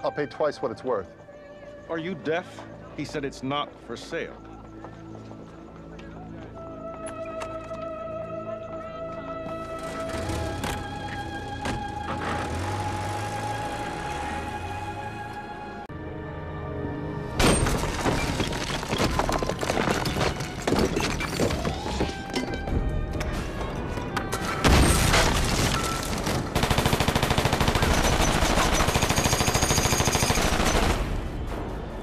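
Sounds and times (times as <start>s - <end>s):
dramatic music score: 0.0s - 32.0s
gunshots: 24.6s - 31.2s
rapid automatic gunfire: 26.3s - 31.1s.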